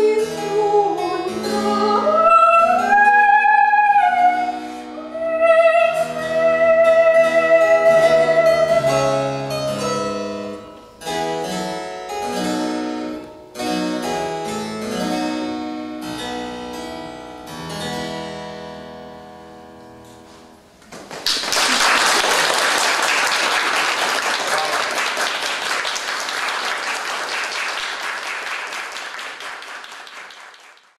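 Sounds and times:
soprano singing: 0.0s - 9.2s
harpsichord playing: 4.4s - 20.0s
audience applause: 20.9s - 31.0s.

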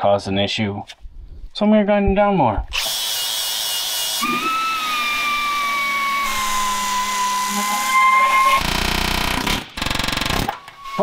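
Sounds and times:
angle grinder whining on steel: 2.8s - 9.5s.

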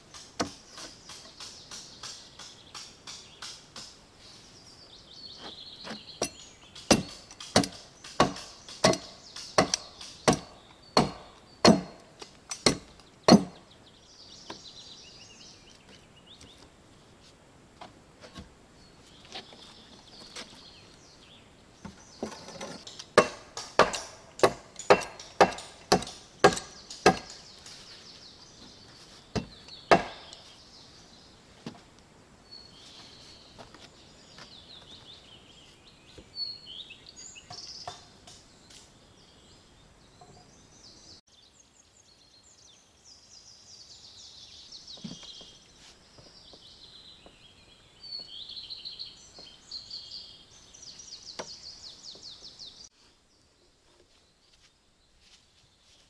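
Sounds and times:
faint birds chirping: 0.0s - 56.0s
axe chopping wood: 0.1s - 4.0s, 5.9s - 13.6s, 22.6s - 27.5s, 29.4s - 30.4s.

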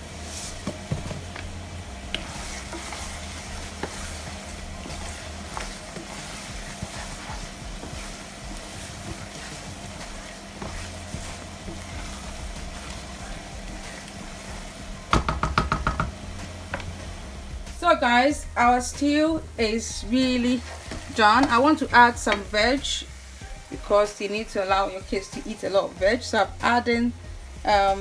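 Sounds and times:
steady low hum: 0.0s - 15.1s, 16.1s - 23.8s
stew sizzling in a pan: 0.0s - 28.0s
wooden spoon knocking on pan: 0.6s - 1.5s, 15.0s - 16.9s, 20.9s - 22.6s.

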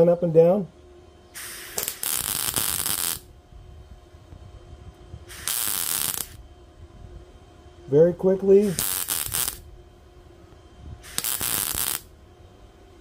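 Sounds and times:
welder arc crackling: 1.4s - 3.3s, 5.3s - 6.4s, 8.3s - 9.7s, 11.0s - 12.2s.

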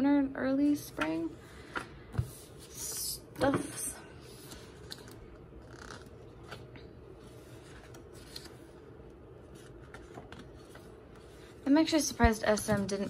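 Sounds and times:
book pages being turned: 4.2s - 13.0s.

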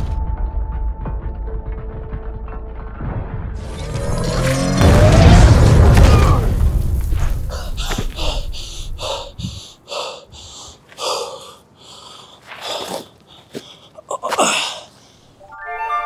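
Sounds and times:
man breathing hard and gasping: 7.4s - 15.4s
music with held notes: 15.4s - 16.0s.

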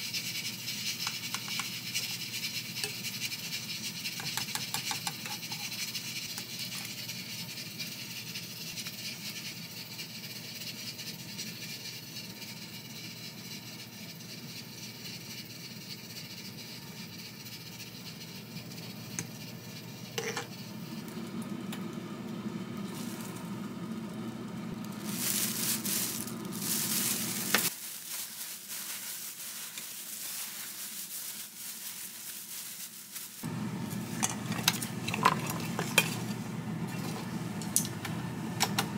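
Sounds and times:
food sizzling in a frying pan: 22.6s - 23.7s, 24.8s - 34.2s.

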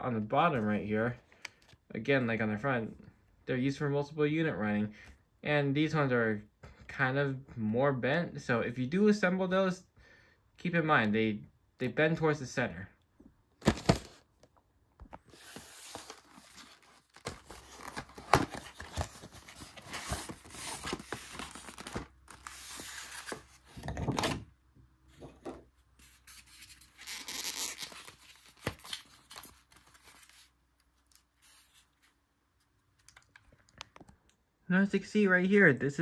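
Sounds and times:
packaging rustling and scraping: 15.2s - 24.4s.

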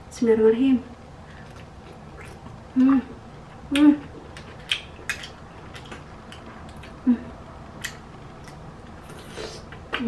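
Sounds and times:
wet eating smacks: 1.3s - 2.7s, 3.6s - 7.0s.

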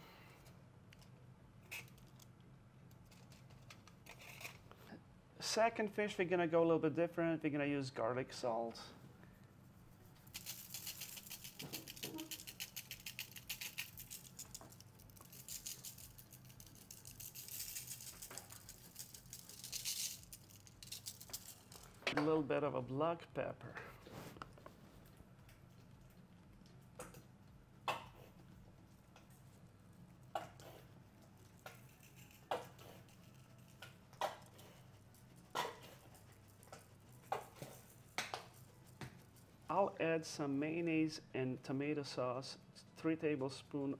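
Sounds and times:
low room hum: 0.0s - 43.9s
pepper sprinkling strokes: 9.5s - 22.0s, 28.2s - 39.7s
shaker bottle rattling: 10.2s - 22.0s, 31.7s - 34.4s.

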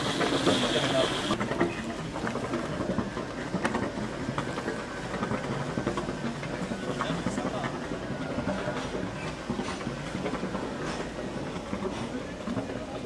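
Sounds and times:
boat engine idling: 0.0s - 3.4s.

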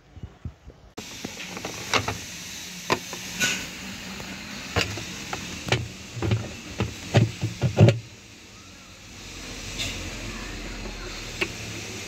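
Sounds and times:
plastic parts knocking: 4.8s - 8.1s.

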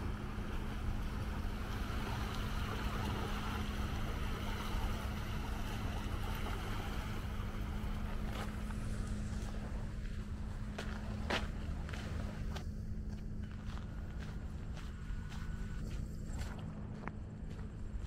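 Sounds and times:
small waves lapping shore: 0.0s - 16.6s
constant low hum: 0.0s - 18.0s
wind: 0.0s - 18.0s.

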